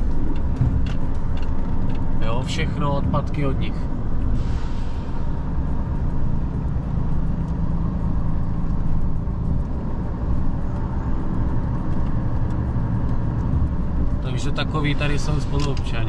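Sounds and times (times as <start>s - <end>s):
truck engine drone: 0.0s - 16.0s.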